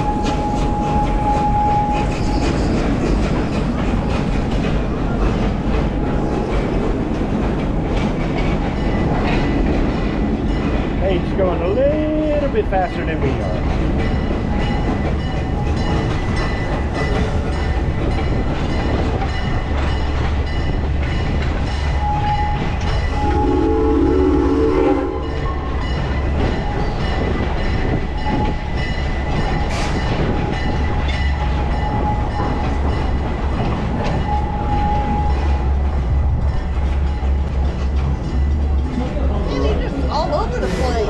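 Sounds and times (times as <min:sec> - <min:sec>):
train rumbling on tracks: 0:00.0 - 0:41.0
chord-like train horn blast: 0:23.2 - 0:25.8.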